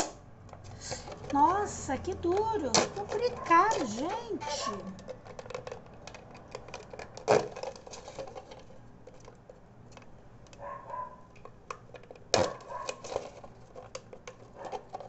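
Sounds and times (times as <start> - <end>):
plastic cracking: 0.0 - 15.0
knife cutting plastic bottle: 0.8 - 8.4, 12.4 - 13.4.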